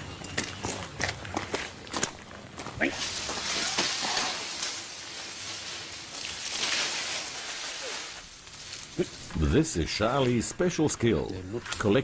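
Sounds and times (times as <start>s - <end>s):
palm fronds rustling in wind: 1.8s - 10.6s.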